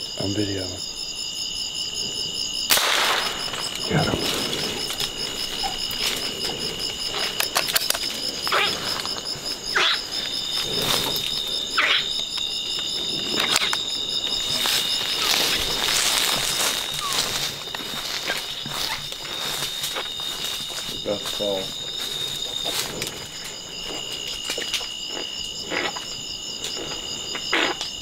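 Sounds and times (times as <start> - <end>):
crickets trilling: 0.0 - 28.0
short squeaky calls: 9.7 - 10.1, 11.8 - 12.1, 17.0 - 17.3, 18.2 - 19.1.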